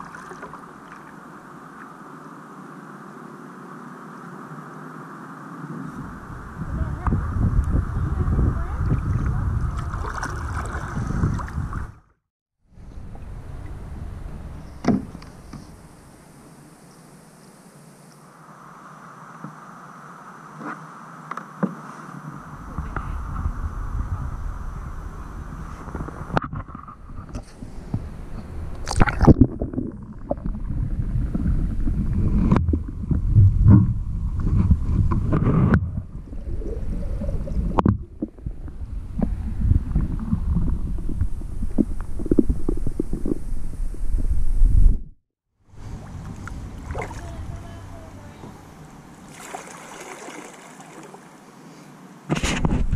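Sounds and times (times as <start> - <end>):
water sloshing around a kayak: 0.0 - 2.0, 8.6 - 12.0, 45.7 - 52.2
low underwater rumble: 5.8 - 15.9, 22.4 - 45.2
steady water hiss: 12.7 - 26.4, 45.6 - 52.3
sharp knock or splash: 49.3 - 51.1.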